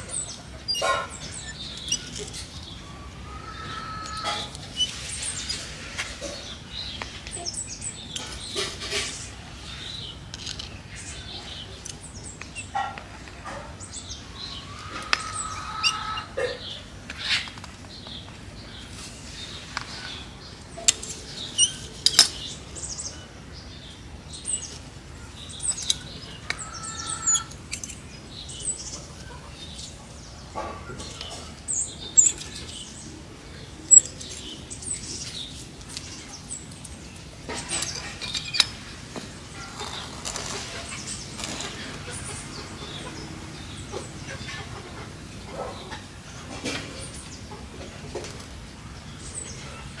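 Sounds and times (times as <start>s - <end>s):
birds chirping: 0.0s - 50.0s
leaves rustling: 14.2s - 42.7s.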